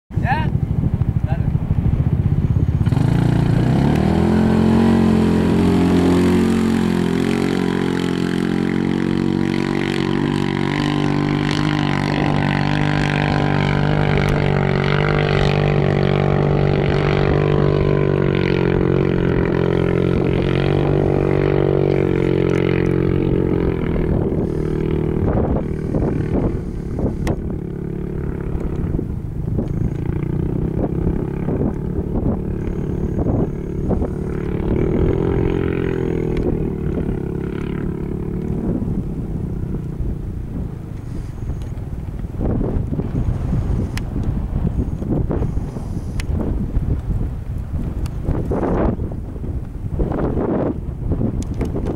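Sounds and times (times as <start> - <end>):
off-road vehicle engine revving: 2.1 - 41.8.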